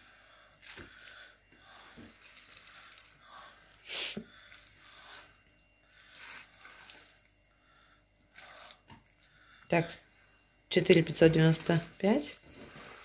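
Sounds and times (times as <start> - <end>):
wet squishing of minced meat: 0.5 - 3.6, 4.3 - 7.4, 8.2 - 9.4, 12.0 - 13.0.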